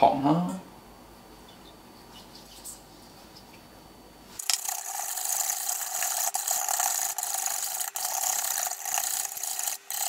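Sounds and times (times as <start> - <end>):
whisk scraping a metal bowl: 4.4 - 10.0.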